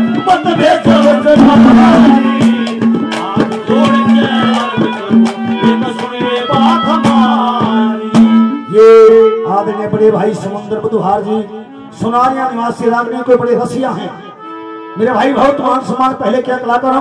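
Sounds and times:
fast drumming: 0.0 - 8.8
jingling percussion: 0.0 - 8.8.

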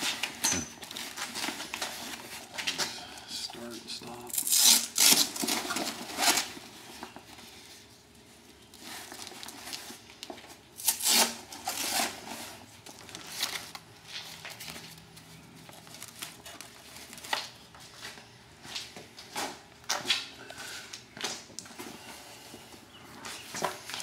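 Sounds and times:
velcro straps ripping: 4.3 - 6.5, 10.8 - 12.2.

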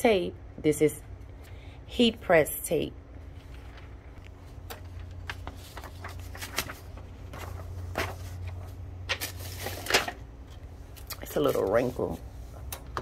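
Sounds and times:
steady low hum: 0.0 - 13.0
tape peeling and paper rustling: 3.4 - 12.8.

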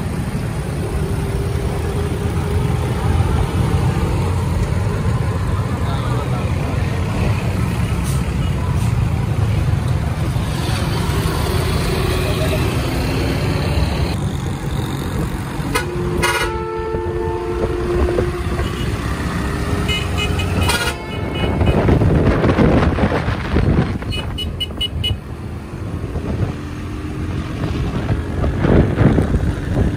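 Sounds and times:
bus engine passing close: 0.0 - 24.1
street traffic: 0.0 - 29.9
musical vehicle horn: 15.7 - 19.0, 19.8 - 22.0.

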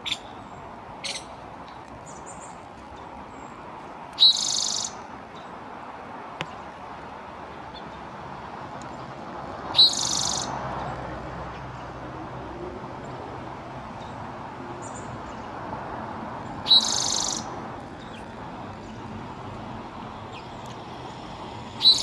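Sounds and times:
bird song with buzzy trill: 4.2 - 5.0, 9.8 - 10.5, 16.6 - 18.3, 21.8 - 22.0.

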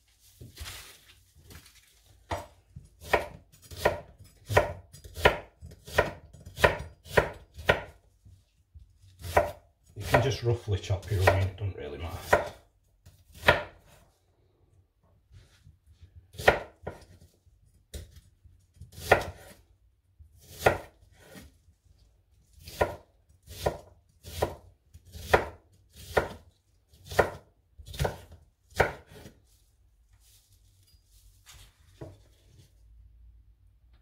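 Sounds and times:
knife chopping onion on wooden board: 2.3 - 8.1, 9.0 - 10.3, 11.2 - 11.6, 12.2 - 14.0, 16.1 - 19.6, 20.3 - 21.5, 22.4 - 29.4.

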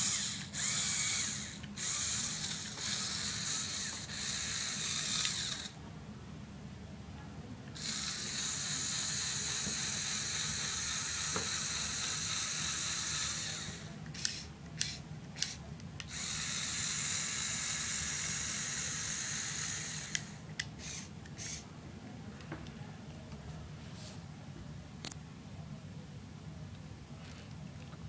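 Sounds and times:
toy motors and gears whirring: 0.0 - 5.8, 7.8 - 21.6.

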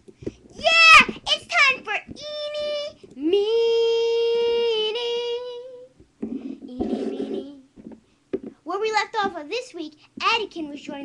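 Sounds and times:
child singing without words: 0.6 - 6.0, 6.6 - 7.7
rough vocal sound: 6.3 - 7.7.

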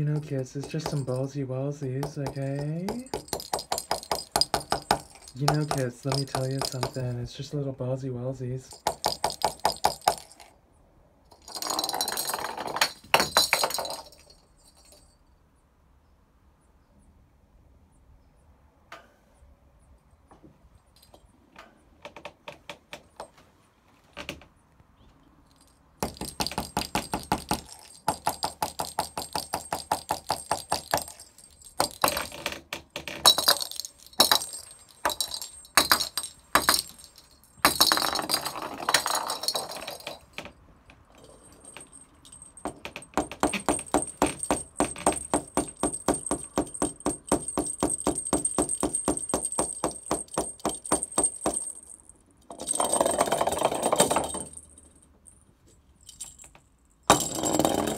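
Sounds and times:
plastic balls rattling on wooden floor: 0.0 - 7.2, 8.7 - 10.5, 11.3 - 15.0, 25.6 - 54.8, 56.1 - 57.9
thin high ringing: 33.3 - 40.4.

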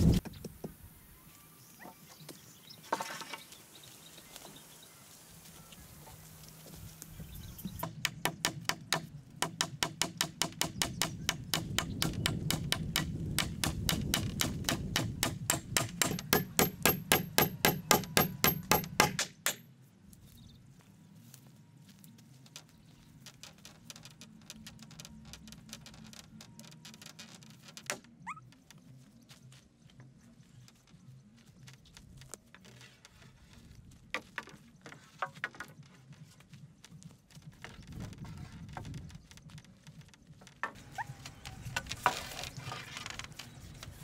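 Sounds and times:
hand tool striking wood: 7.8 - 19.7.

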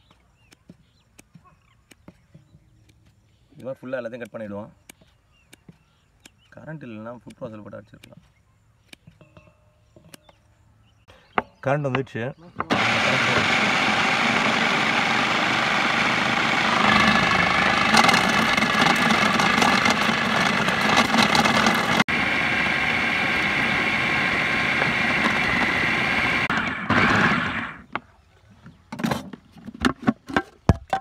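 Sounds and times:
food processor running: 12.7 - 27.8.

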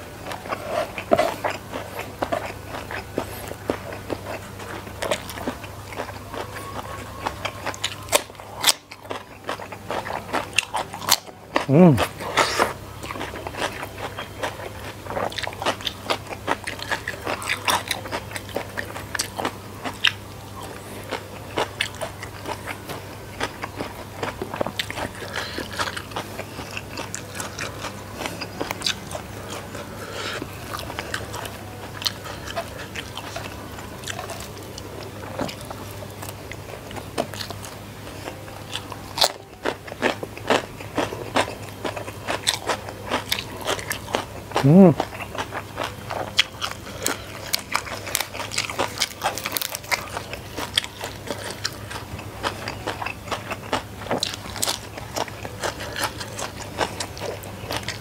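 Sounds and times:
crunchy food chewing: 0.0 - 58.0
low steady hum: 0.0 - 58.0.

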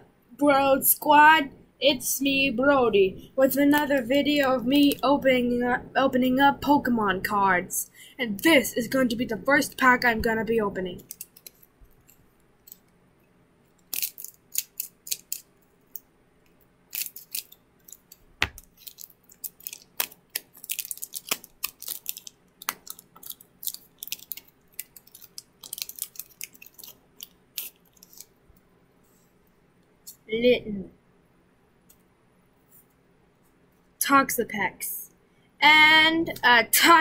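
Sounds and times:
cards being handled: 13.8 - 15.5, 16.9 - 28.3
foil wrapper crinkling and tearing: 13.8 - 15.5, 16.9 - 28.3.

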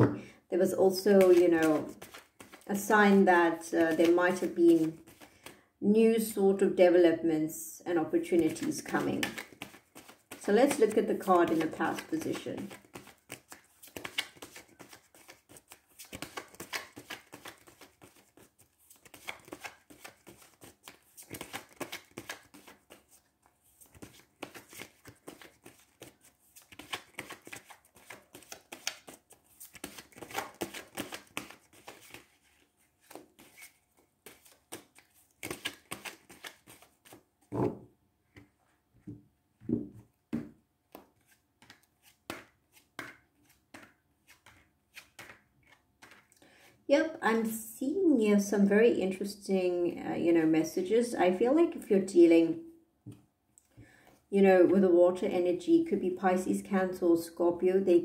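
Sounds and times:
cards being shuffled: 1.1 - 5.6, 8.3 - 37.8, 40.4 - 46.4
cards knocking together: 23.9 - 32.3.

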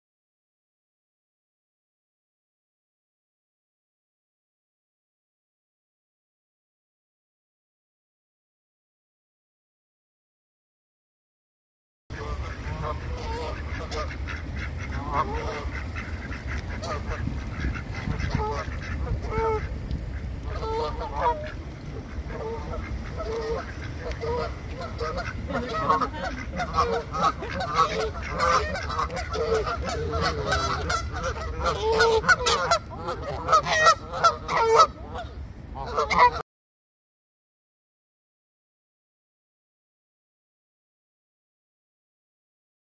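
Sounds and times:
geese honking: 12.1 - 36.4
steady low rumble: 12.1 - 36.4.

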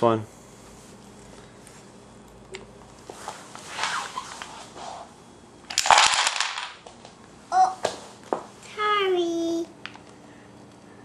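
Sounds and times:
wooden blocks clattering on floor: 5.7 - 7.0.

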